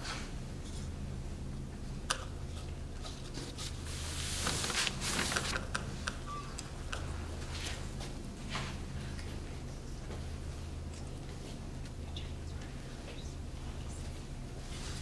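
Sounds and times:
steady low hum: 0.0s - 15.0s
paper rustling: 3.1s - 5.8s.

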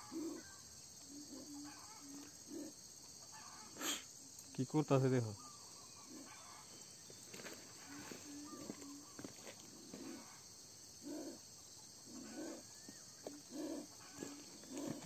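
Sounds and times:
crickets chirping: 0.0s - 15.0s
snake hissing: 3.8s - 4.1s.

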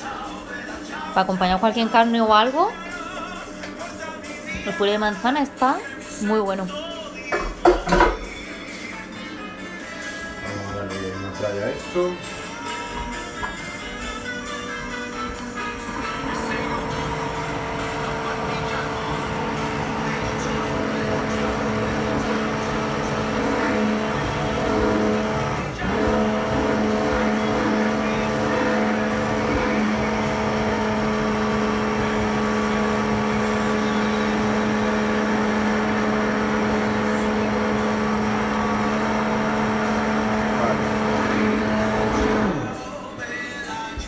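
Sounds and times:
immersion blender running: 12.9s - 42.9s.

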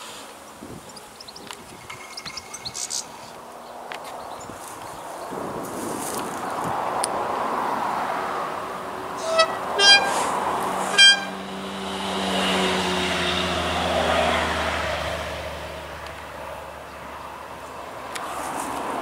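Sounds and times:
diesel engine drone: 8.5s - 16.8s
train horn toots: 9.2s - 11.7s.

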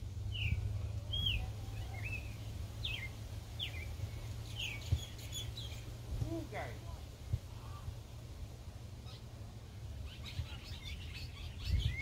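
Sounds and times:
steady low rumble: 0.0s - 12.0s
bird chirping: 0.3s - 6.0s, 9.0s - 12.0s.

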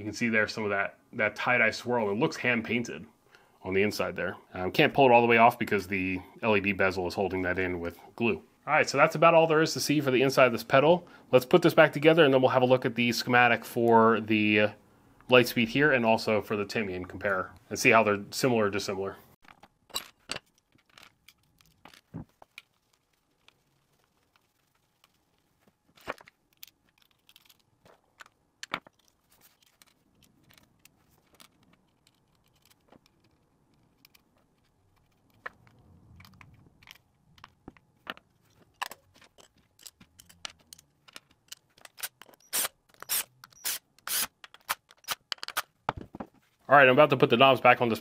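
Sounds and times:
small metal parts clicking and tapping: 19.4s - 25.4s, 26.3s - 45.7s
screws handled against metal enclosure: 38.2s - 45.7s.

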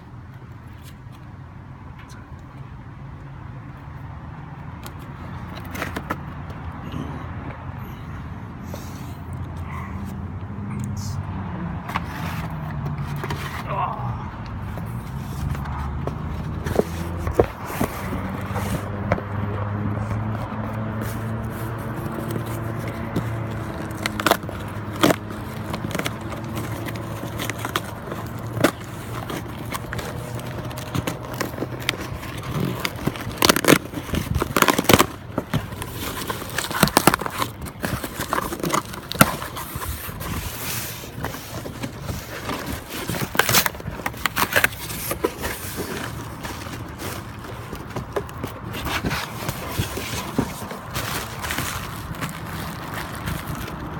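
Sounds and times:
cardboard scraping and tearing: 11.8s - 53.9s.

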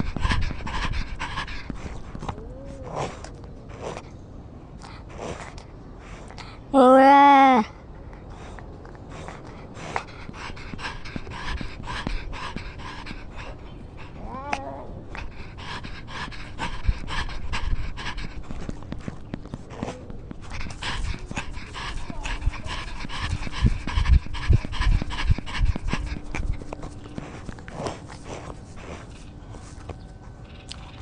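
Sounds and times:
cat panting: 0.0s - 4.0s, 8.0s - 30.4s.

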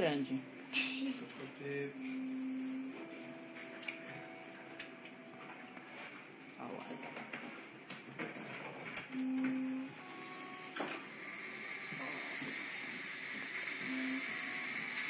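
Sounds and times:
short low tones: 1.5s - 3.4s
dental drill whine: 9.8s - 15.0s.

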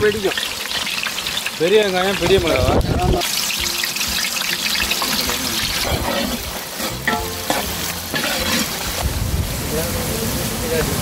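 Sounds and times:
vegetables sizzling in oil: 0.0s - 11.0s
metal spoon stirring pot: 3.6s - 9.0s.

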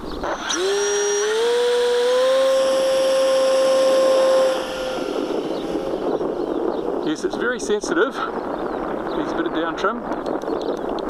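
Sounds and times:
electric motor and propeller whining: 0.0s - 7.9s.

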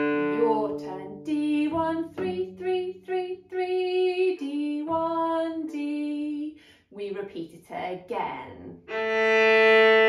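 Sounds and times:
woman singing unaccompanied: 0.2s - 7.3s.

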